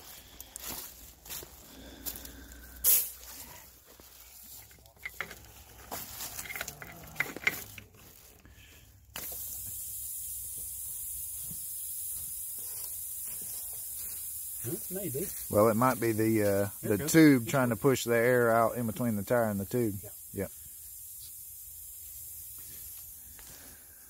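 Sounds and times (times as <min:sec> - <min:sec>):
rustling in dry leaves: 0:00.0 - 0:09.6, 0:12.0 - 0:17.4
compressed air hissing: 0:00.0 - 0:24.0.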